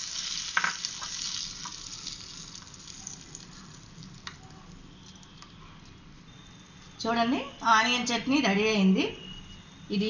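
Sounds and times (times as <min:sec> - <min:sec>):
hot oil sizzling: 0:00.0 - 0:05.4.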